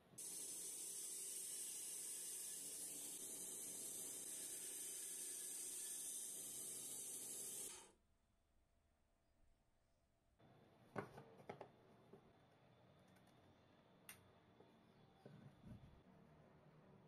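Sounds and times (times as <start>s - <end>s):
bandsaw cutting plywood: 0.2s - 7.9s.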